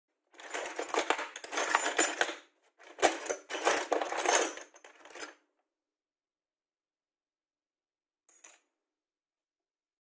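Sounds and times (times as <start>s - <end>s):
metal drill bits clattering: 0.4s - 5.4s.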